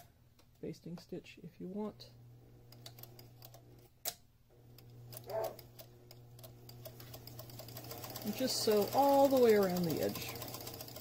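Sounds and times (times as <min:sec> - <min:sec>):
sewing machine stitching: 0:04.8 - 0:11.0.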